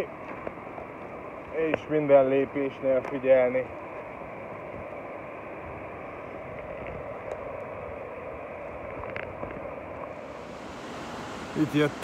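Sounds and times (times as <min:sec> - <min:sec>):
river rushing: 0:09.6 - 0:12.0.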